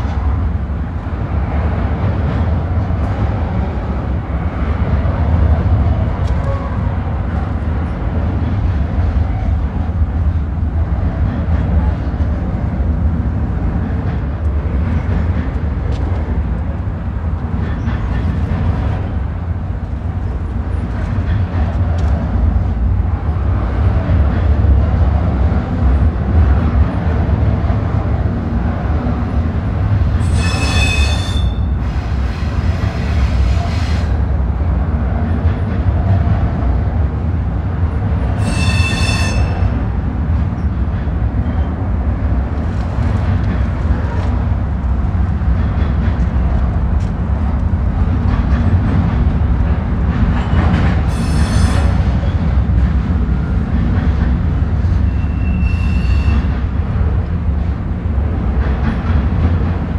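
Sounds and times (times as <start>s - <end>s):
freight train rumbling past: 0.0s - 59.9s
wheel squeal: 30.2s - 31.7s, 38.4s - 39.6s, 55.0s - 56.5s.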